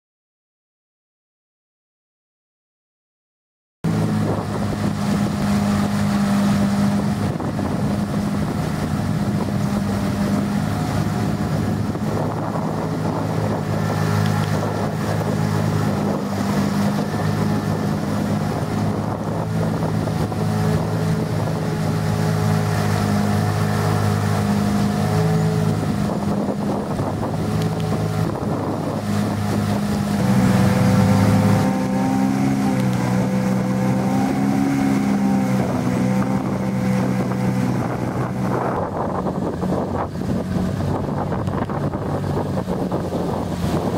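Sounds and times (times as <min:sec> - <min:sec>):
outboard motor running: 0:03.9 - 0:43.9
wind noise on microphone: 0:03.9 - 0:43.9.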